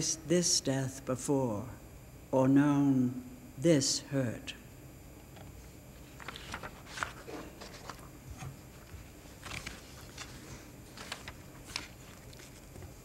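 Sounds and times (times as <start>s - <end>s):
low steady hum: 0.0s - 13.0s
paper rustling: 6.0s - 13.0s.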